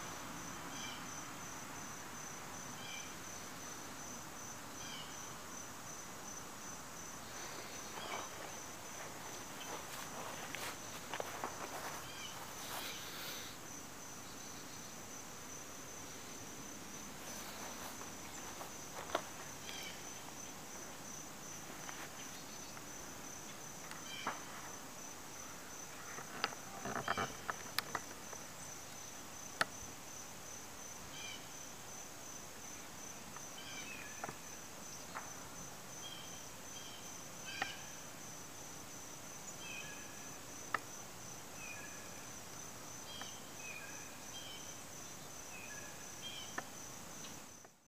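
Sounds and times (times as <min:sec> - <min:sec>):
high-pitched insect chirping: 0:00.1 - 0:47.8.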